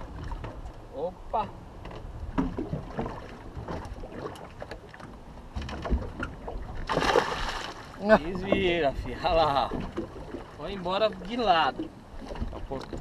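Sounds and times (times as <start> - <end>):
water slapping hull: 1.8 - 13.0
wind rumble on microphone: 5.1 - 10.8.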